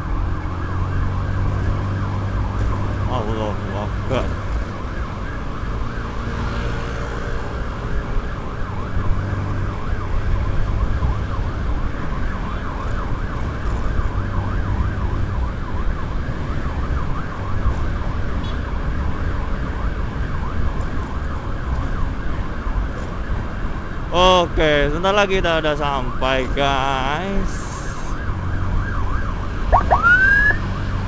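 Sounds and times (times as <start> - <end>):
electronic siren yelping: 27.8 - 31.0.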